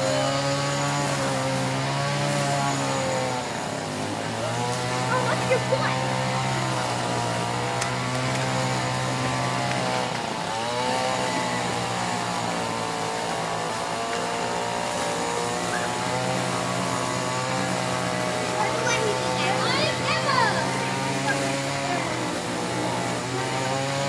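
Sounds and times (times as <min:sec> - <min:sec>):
small engine running: 0:00.0 - 0:24.0.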